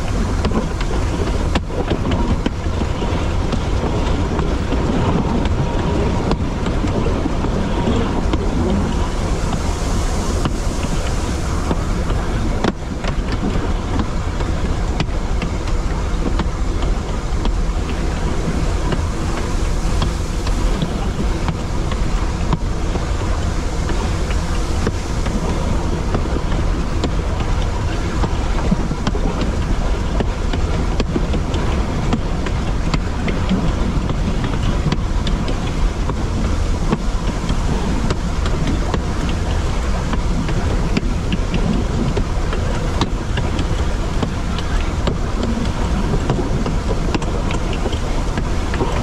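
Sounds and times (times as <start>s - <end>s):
train rumbling: 0.0s - 49.0s
wind noise: 0.0s - 49.0s.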